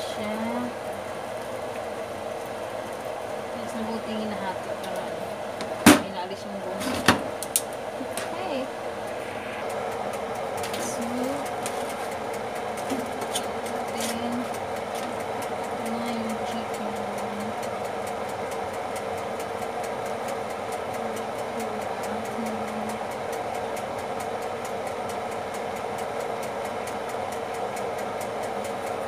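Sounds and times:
appliance motor hum: 0:00.0 - 0:29.0
light even ticking: 0:09.0 - 0:29.0.

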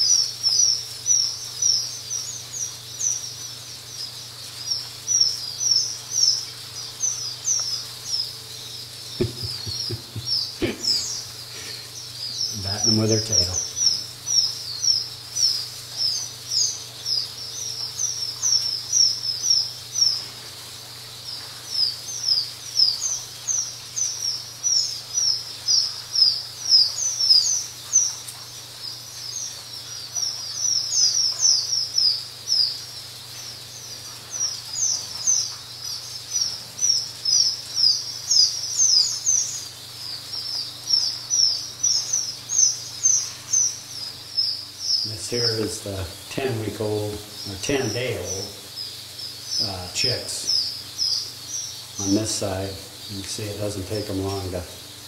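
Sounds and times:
chicks peeping: 0:00.0 - 0:55.0
faint low hum: 0:00.1 - 0:28.4.

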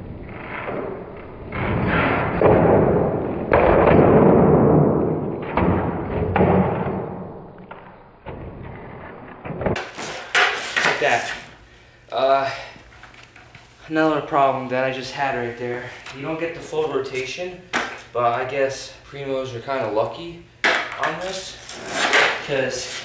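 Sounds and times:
skateboard wheels rolling on concrete: 0:00.0 - 0:11.6
skateboard hitting the floor: 0:00.3 - 0:11.5, 0:17.7 - 0:18.1, 0:20.6 - 0:22.4
skateboard tail clack: 0:09.6 - 0:11.3.

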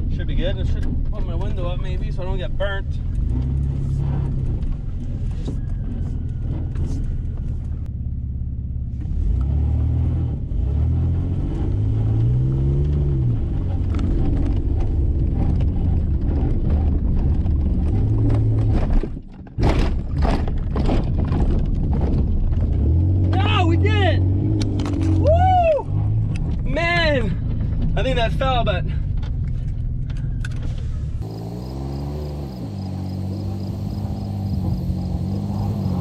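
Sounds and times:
truck engine accelerating: 0:00.0 - 0:19.3, 0:20.7 - 0:36.0
truck landing thumps and rattles: 0:15.4 - 0:23.3.

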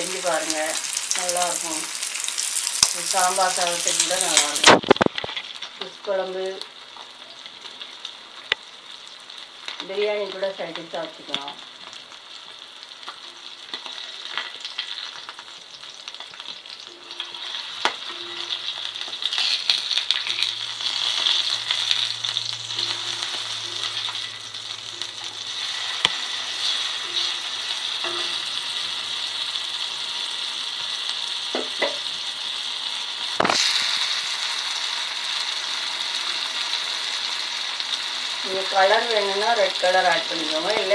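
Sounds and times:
fish sizzling in oil: 0:00.0 - 0:40.9
spatula scraping a pan: 0:16.9 - 0:22.1, 0:22.7 - 0:24.4, 0:25.2 - 0:28.9.

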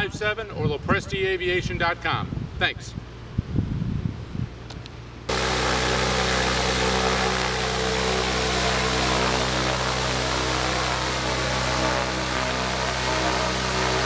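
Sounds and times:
propeller aircraft engine running: 0:05.3 - 0:14.0.

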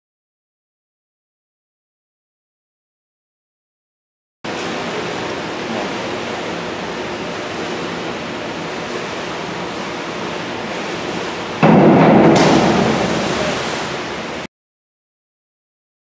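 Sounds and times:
indoor pool hiss: 0:04.5 - 0:14.5.

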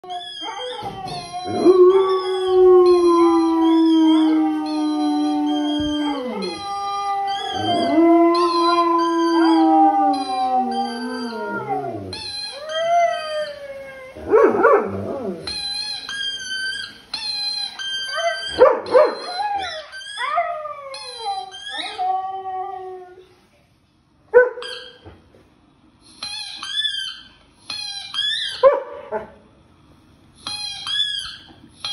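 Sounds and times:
dogs howling: 0:00.0 - 0:15.6.

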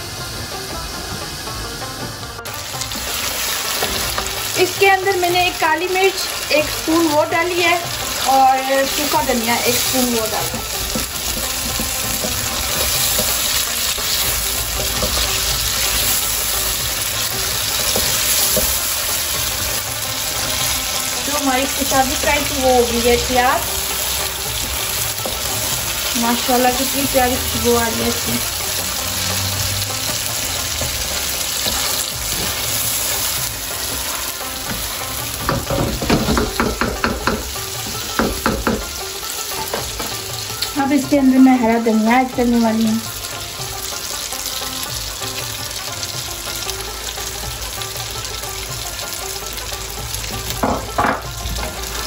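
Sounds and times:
chicken sizzling in oil: 0:00.0 - 0:52.0
spatula scraping and tapping pan: 0:09.3 - 0:15.5, 0:30.0 - 0:40.3
wooden spatula scraping pan: 0:29.2 - 0:36.6.

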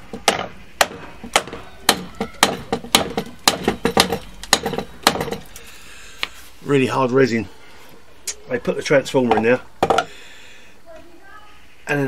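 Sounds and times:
tool striking hard resin: 0:00.0 - 0:05.6.

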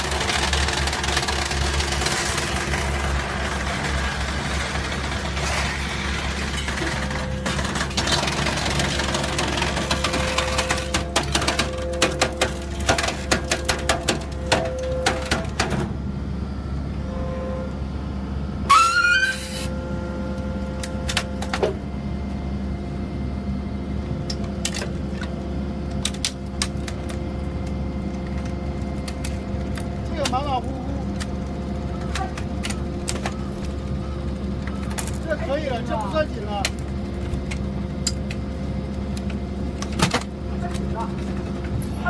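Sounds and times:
scrap metal cracking and snapping: 0:00.0 - 0:15.7
machine hum: 0:00.0 - 0:42.0
metallic screech: 0:18.7 - 0:19.8.

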